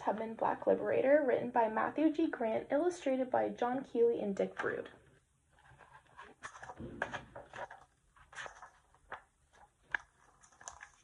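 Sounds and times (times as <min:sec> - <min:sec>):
book pages rustling: 0:05.5 - 0:11.0.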